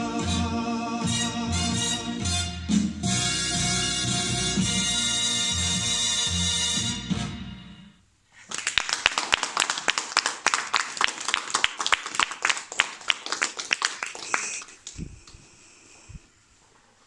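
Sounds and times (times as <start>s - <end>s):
recorded song music: 0.0s - 7.9s
small audience applauding: 8.4s - 15.4s.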